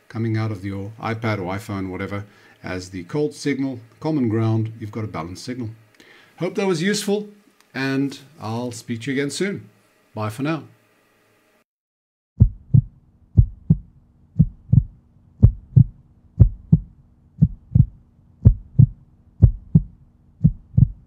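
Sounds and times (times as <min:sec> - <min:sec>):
faint low steady hum: 0:00.0 - 0:11.6, 0:12.4 - 0:21.0
heartbeat double thump: 0:12.4 - 0:21.0.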